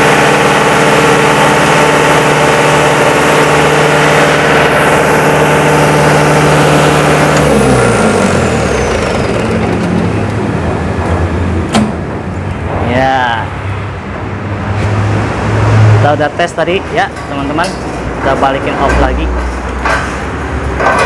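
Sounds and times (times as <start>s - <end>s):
diesel engine winding down: 0.0s - 13.5s
high whine: 0.0s - 14.4s.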